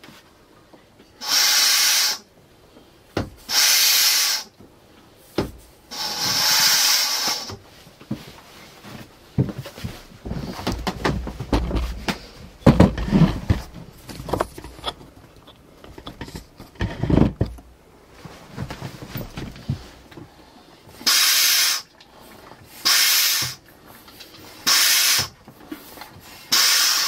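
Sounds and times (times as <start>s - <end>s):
hand pump air hissing: 1.2s - 2.3s, 3.5s - 4.6s, 5.9s - 7.6s, 21.0s - 21.9s, 22.7s - 23.6s, 24.3s - 27.0s
handling knocks and clatters: 7.6s - 20.4s.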